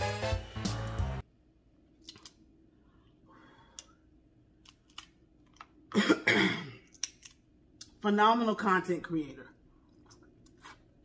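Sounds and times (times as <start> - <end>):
clicks and smacks of eating: 2.0 - 2.5, 6.8 - 8.0.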